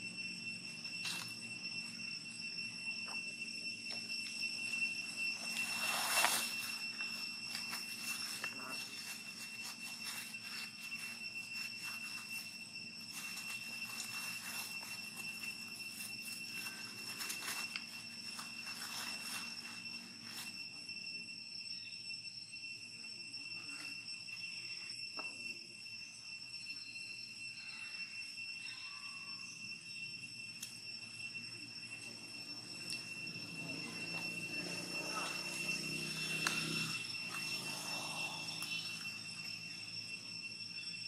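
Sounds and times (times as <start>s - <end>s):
high-pitched insect drone: 0.0s - 41.0s
dry leaves rustling and crackling: 5.4s - 20.6s.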